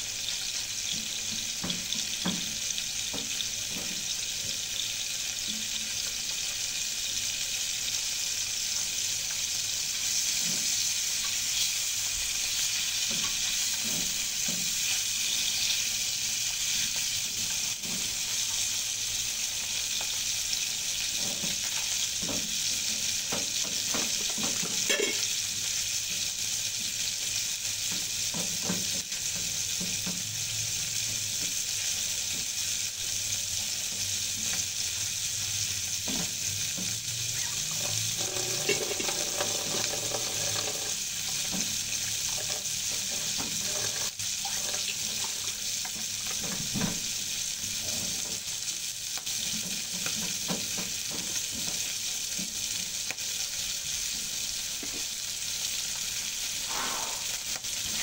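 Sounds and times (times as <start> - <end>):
fish sizzling in a pan: 0.0 - 58.0
utensil scraping a pan: 37.4 - 45.4, 56.6 - 57.4.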